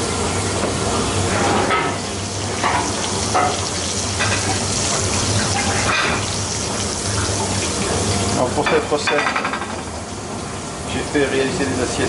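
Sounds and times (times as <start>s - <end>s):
butter sizzling in a frying pan: 1.9s - 8.8s.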